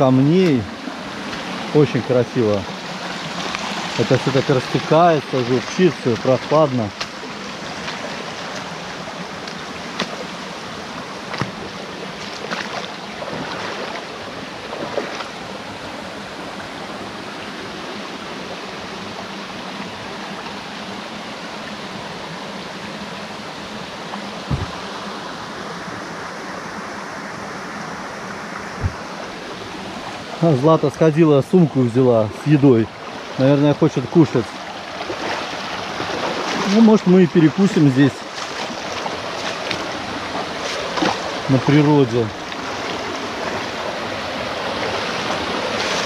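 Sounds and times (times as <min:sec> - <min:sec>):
stream babbling over stones: 0:00.0 - 0:46.0
short low thumps: 0:24.4 - 0:24.8, 0:28.8 - 0:29.0
brief knocks and clicks: 0:24.5 - 0:24.8.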